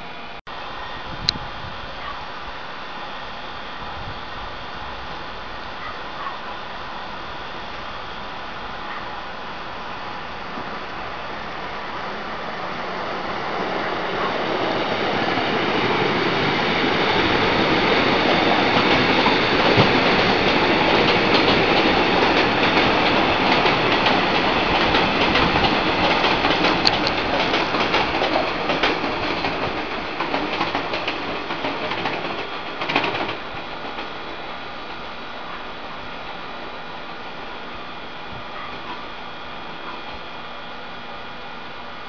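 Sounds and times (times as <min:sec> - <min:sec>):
train rumble: 0:00.0 - 0:42.0
wheels clacking over rail joints: 0:12.8 - 0:34.2.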